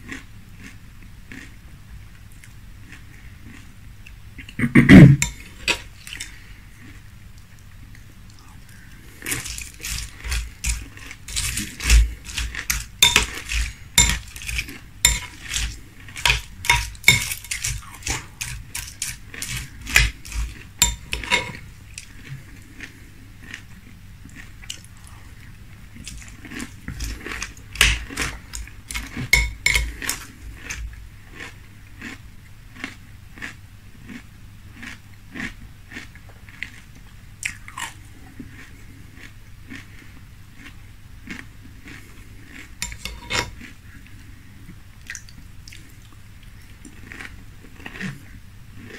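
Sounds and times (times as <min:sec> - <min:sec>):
chewing crunchy cereal: 0:00.0 - 0:04.6, 0:05.2 - 0:48.9
spoon clinking in glass bowl: 0:12.3 - 0:20.1, 0:20.8 - 0:21.6, 0:29.4 - 0:29.9.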